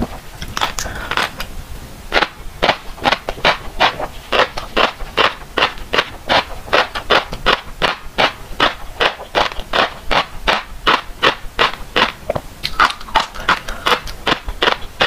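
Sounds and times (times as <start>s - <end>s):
chewing crunchy fish roe: 2.2s - 15.0s.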